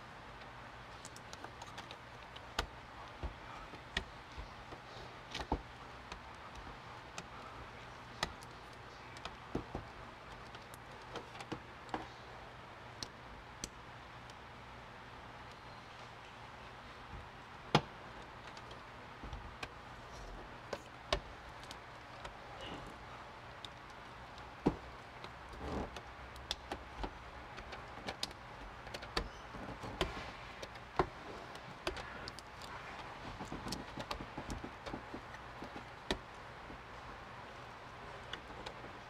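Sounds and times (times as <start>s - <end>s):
film rustling: 17.1s - 39.0s.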